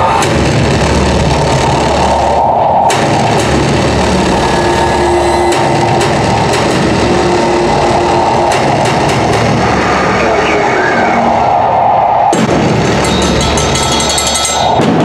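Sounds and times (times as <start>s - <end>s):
percussion ensemble rumble: 0.0s - 15.0s
held tone: 13.0s - 14.8s.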